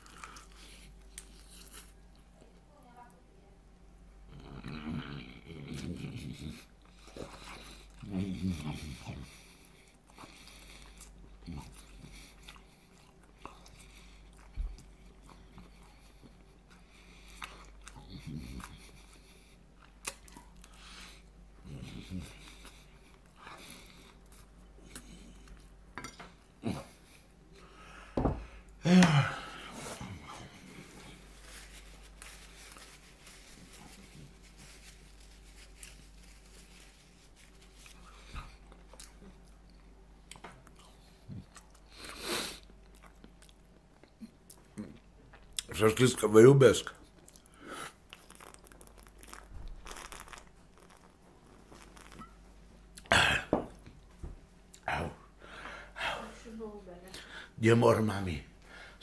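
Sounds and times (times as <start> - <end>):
man chewing french fries: 0.0 - 2.4, 4.3 - 27.3, 29.4 - 45.8, 47.0 - 55.0
steady low hum: 0.0 - 59.0
paper napkin rustling: 29.6 - 38.3.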